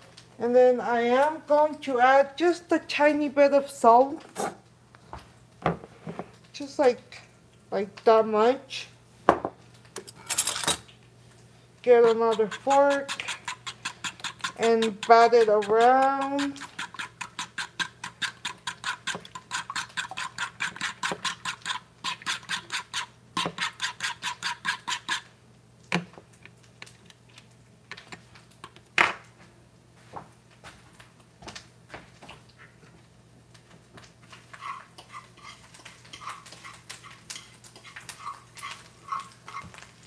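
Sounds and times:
fork beating eggs in a bowl: 11.8 - 25.3, 34.3 - 40.0.

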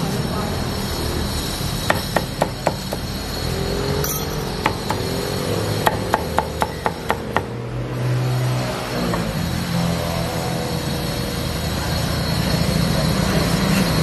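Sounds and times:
cleaver chopping on wooden block: 1.9 - 3.1, 4.0 - 7.6.

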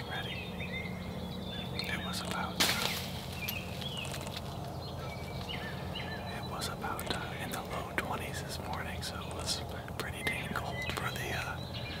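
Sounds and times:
low whispered talk: 0.0 - 0.4, 1.8 - 2.9, 6.2 - 11.7
faint bird calls: 0.0 - 12.0.

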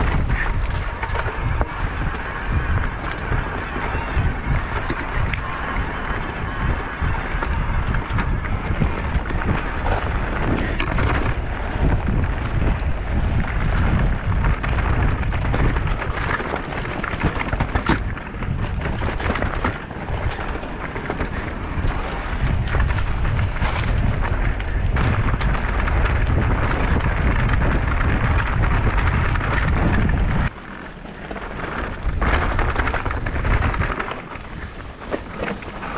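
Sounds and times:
bike rattling clicks and knocks: 0.0 - 35.9
tyres rolling on dirt trail: 0.0 - 35.9
wind buffeting microphone: 0.0 - 35.9.

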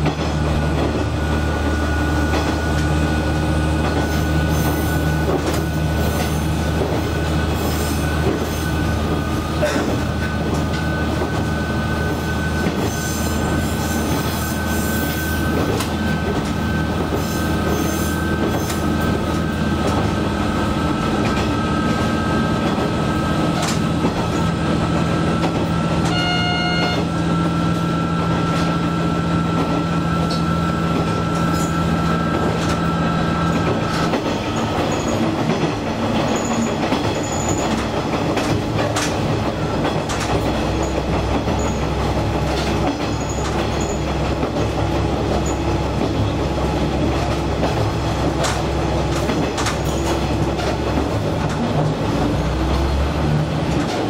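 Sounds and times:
railcar engine hum: 0.0 - 54.0
wheels clicking over rails: 14.0 - 26.3, 29.5 - 54.0
brief pitched tone: 26.1 - 27.2.

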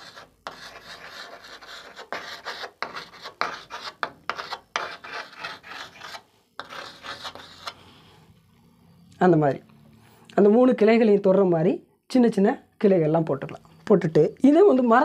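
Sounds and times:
chalk scraping on chalkboard: 0.0 - 8.1.

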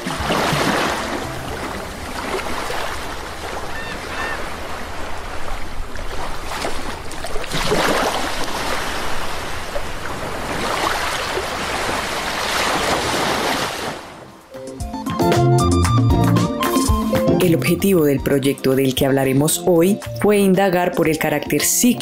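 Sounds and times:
waves breaking: 0.0 - 14.6.

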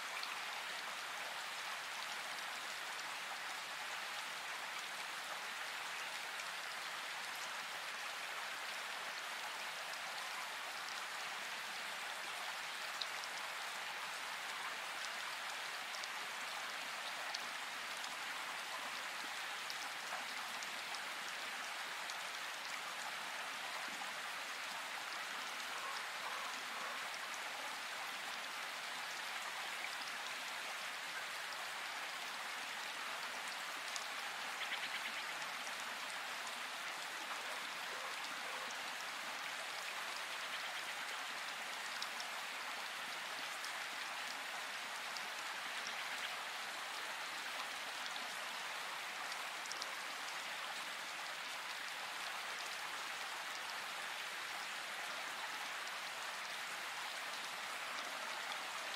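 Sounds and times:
steady rain hiss: 0.0 - 58.9
faint raindrop ticks: 32.8 - 38.8.

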